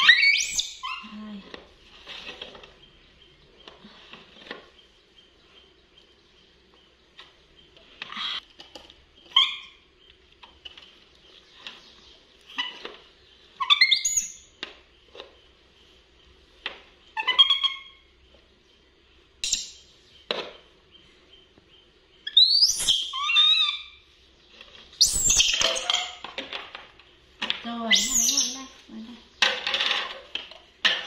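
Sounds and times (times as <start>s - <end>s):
monkeys chirping squeaks: 0.0s - 1.2s, 9.3s - 9.8s, 13.6s - 14.4s, 17.1s - 18.1s, 22.2s - 24.0s, 25.0s - 26.2s, 27.8s - 28.7s.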